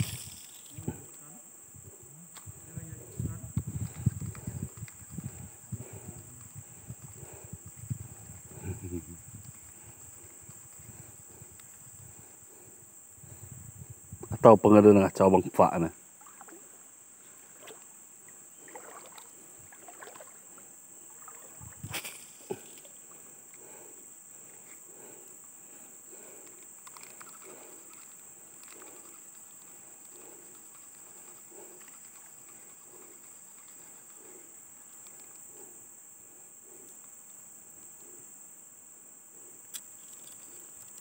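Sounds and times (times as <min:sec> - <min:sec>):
fishing reel cranking: 0:00.0 - 0:00.8
insect chorus: 0:00.0 - 0:41.0.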